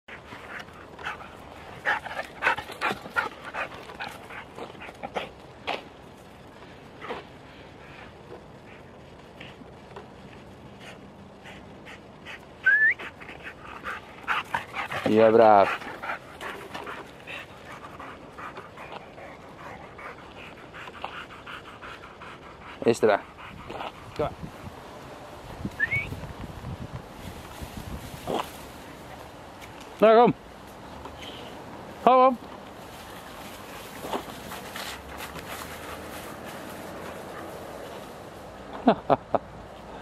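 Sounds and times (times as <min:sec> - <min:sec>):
dog panting rapidly: 0:00.1 - 0:05.4, 0:10.7 - 0:24.4.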